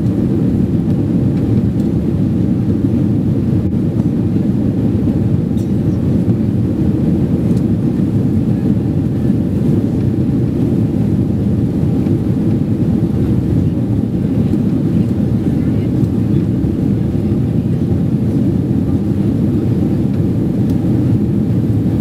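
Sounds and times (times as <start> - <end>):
airplane cabin engine rumble: 0.0 - 22.0.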